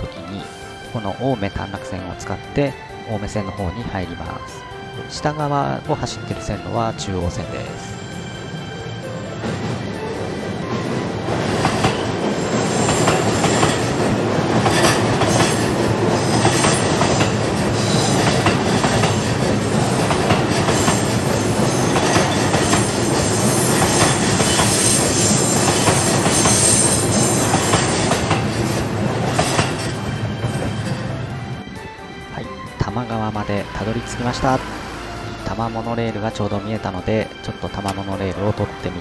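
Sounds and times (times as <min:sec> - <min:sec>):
train rumbling over bridge: 0:00.0 - 0:39.0
wheels clacking over rail joints: 0:09.4 - 0:31.2.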